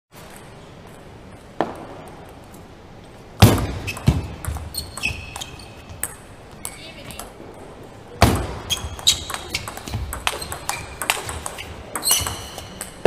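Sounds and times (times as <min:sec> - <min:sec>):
high squeaks: 0:03.8 - 0:05.9, 0:08.6 - 0:13.0
table tennis ball clicking: 0:08.8 - 0:13.0.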